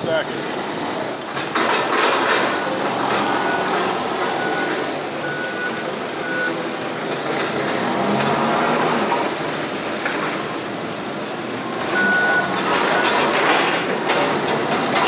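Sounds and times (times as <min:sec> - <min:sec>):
forklift engine running: 0:00.0 - 0:15.0
backup alarm beeps: 0:02.5 - 0:06.7, 0:11.9 - 0:13.3.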